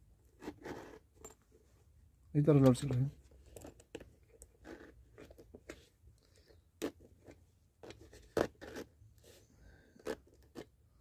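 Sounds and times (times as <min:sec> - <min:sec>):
zipper clicks and scraping: 0:00.2 - 0:01.4, 0:03.4 - 0:05.8, 0:06.4 - 0:10.8.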